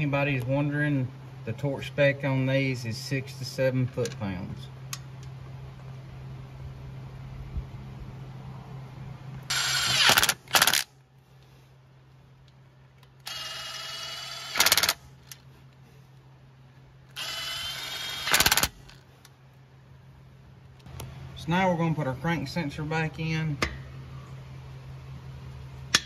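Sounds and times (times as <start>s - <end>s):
drill motor whine: 9.5s - 10.2s, 13.2s - 15.0s, 17.2s - 18.7s
drill clutch clicks: 9.5s - 10.9s, 13.1s - 15.4s, 17.1s - 19.0s.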